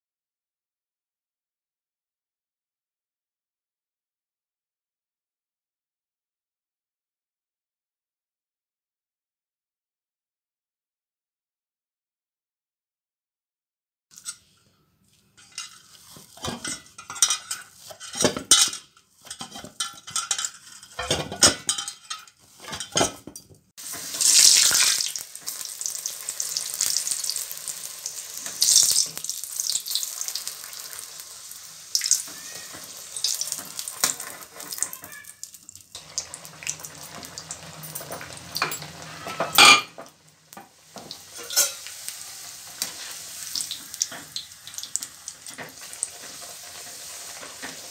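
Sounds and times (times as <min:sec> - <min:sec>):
dough sizzling in hot oil: 0:23.8 - 0:47.9.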